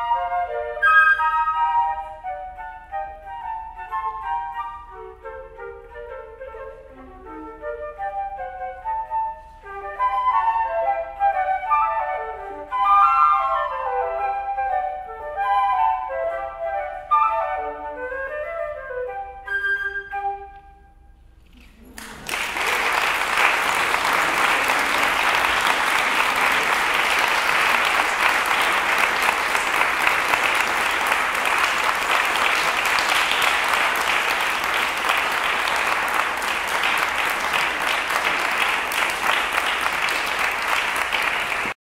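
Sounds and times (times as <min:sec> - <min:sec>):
audience applauding: 0:21.9 - 0:41.8.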